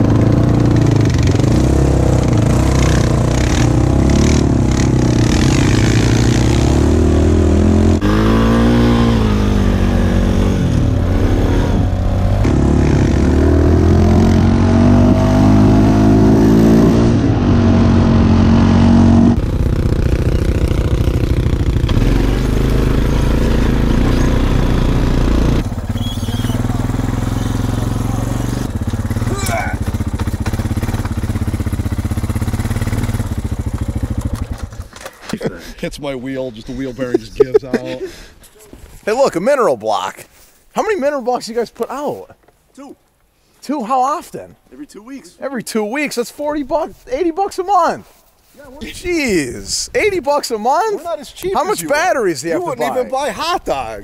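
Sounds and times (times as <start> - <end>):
atv engines revving: 0.0 - 38.3, 48.8 - 54.0.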